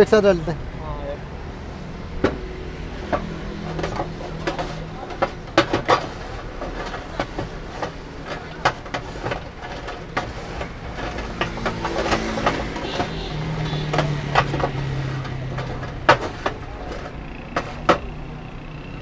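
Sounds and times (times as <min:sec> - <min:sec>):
utensil scraping metal tray: 0:03.0 - 0:18.1.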